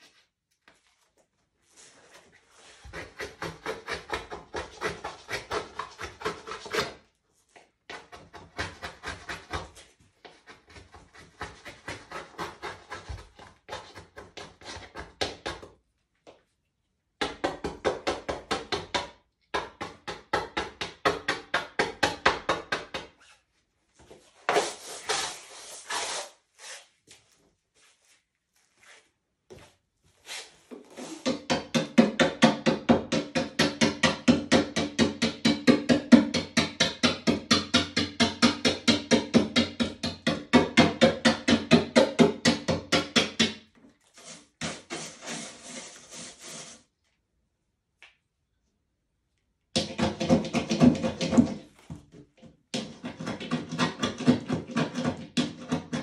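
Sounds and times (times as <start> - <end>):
pencil scribbling on plywood: 44.2 - 46.9.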